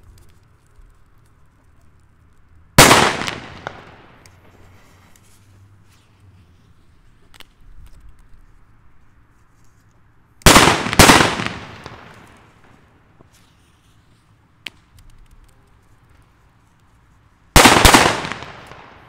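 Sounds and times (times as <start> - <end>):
loud firecracker bangs: 2.8 - 4.2, 10.5 - 12.8, 17.6 - 19.0
small sharp crack: 7.2 - 8.3, 14.6 - 16.2.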